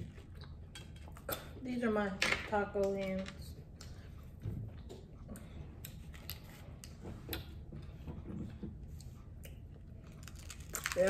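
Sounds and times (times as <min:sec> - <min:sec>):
person chewing food: 0:00.0 - 0:01.6.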